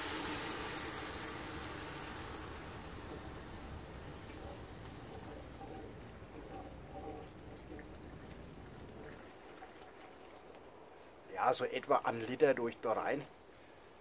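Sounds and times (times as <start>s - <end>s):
water pouring from a kettle: 0.0s - 10.7s
hissing and bubbling in a pot: 0.0s - 10.8s.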